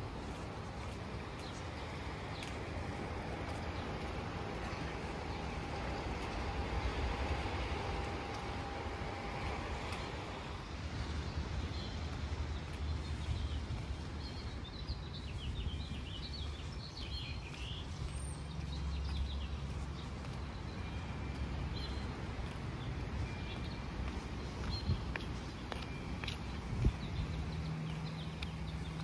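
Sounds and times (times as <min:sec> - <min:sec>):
steady background rumble: 0:00.0 - 0:17.8
small birds chirping: 0:00.1 - 0:29.0.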